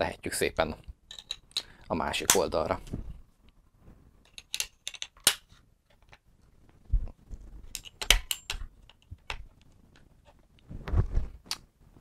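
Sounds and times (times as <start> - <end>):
rifle parts clicking: 4.2 - 6.2, 7.7 - 9.7.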